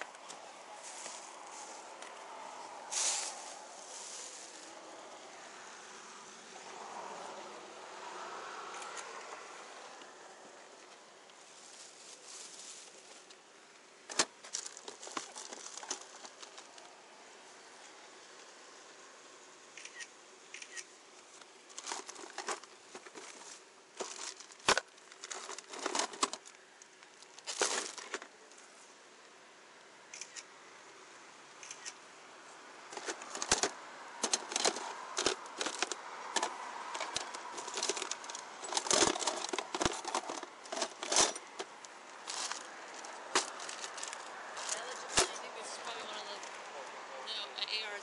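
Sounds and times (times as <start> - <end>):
plastic bags crinkling and rustling: 0.0 - 5.0, 10.8 - 13.4, 14.1 - 17.0, 21.4 - 28.4, 32.8 - 46.8.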